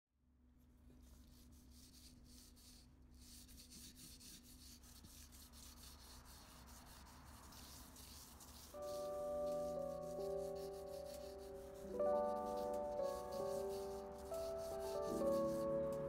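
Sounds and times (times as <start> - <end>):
charcoal scratching on paper: 0.9 - 16.0.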